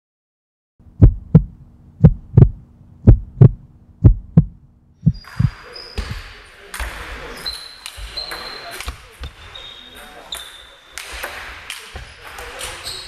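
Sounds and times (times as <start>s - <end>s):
heartbeat lub-dub beats: 0.8s - 5.6s
steady low hum: 0.8s - 5.6s.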